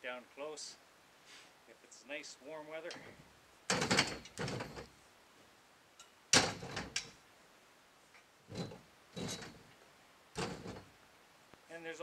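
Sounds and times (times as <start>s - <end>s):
metal poles sliding and clunking: 2.9s - 5.0s, 6.0s - 7.2s, 8.4s - 9.8s, 10.4s - 11.0s
loud metal clank: 6.3s - 7.1s
soft metal scrapes: 8.5s - 9.8s, 10.4s - 10.9s.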